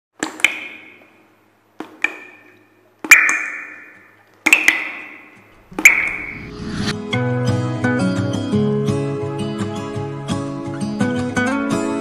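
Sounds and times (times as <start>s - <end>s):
rising swell: 5.5s - 7.3s
music: 5.7s - 12.0s.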